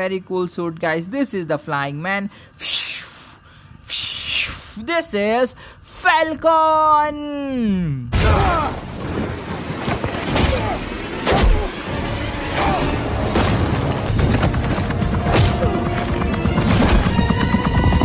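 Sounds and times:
loud dramatic music: 0:10.5 - 0:18.0.

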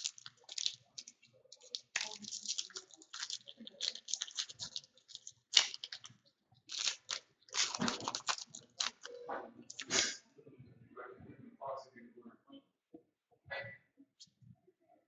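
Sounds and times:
foil wrapper tearing and crinkling: 0:00.0 - 0:06.1, 0:06.7 - 0:09.1.

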